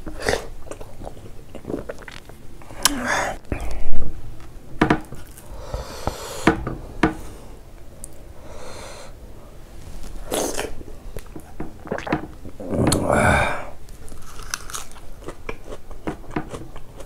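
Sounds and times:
breathing through the nose: 0:05.4 - 0:06.6, 0:08.3 - 0:09.2
fingers tearing soft food: 0:14.0 - 0:17.0.

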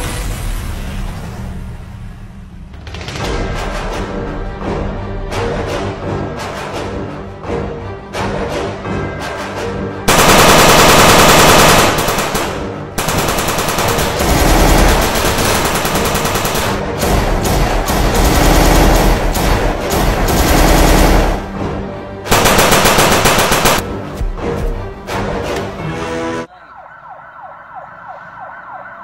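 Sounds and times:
machine-gun fire: 0:10.1 - 0:21.6, 0:22.3 - 0:23.8.

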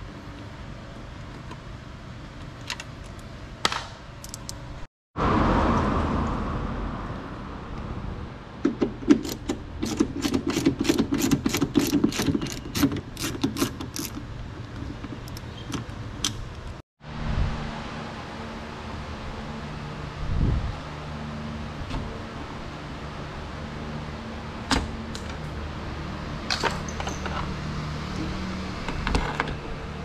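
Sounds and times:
hand tool metallic clicks and rattles: 0:04.2 - 0:04.6, 0:08.8 - 0:16.8.

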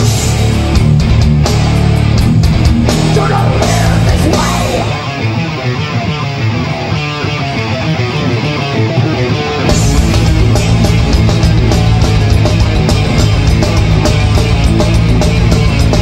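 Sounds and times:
drums and cymbals: 0:00.0 - 0:05.0, 0:09.7 - 0:16.0
bass guitar: 0:00.0 - 0:16.0
distorted electric guitars: 0:00.0 - 0:16.0.

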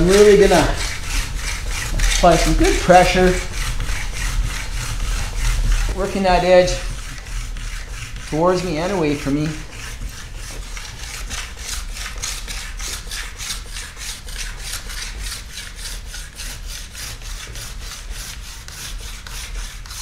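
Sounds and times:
stone rasping on ski edge: 0:00.0 - 0:20.0.

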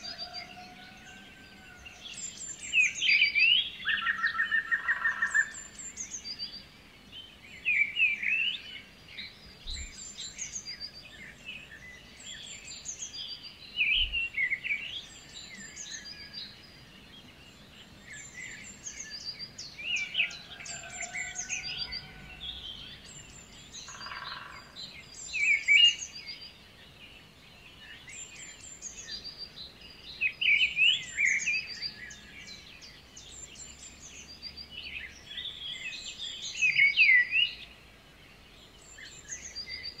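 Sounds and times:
birds chirping and calling: 0:17.5 - 0:40.0.

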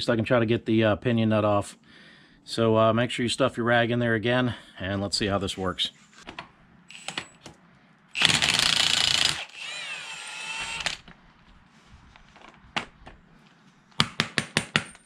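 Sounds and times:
impact wrench spinning whine: 0:06.9 - 0:07.4, 0:08.1 - 0:11.2.

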